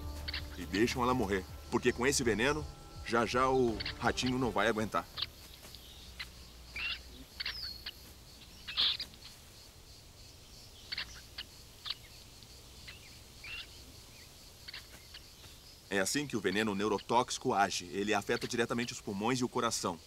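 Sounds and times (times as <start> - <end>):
bird chirps and calls: 0.0 - 9.4, 10.7 - 12.2, 12.8 - 17.2
faint open-air background: 0.0 - 20.0.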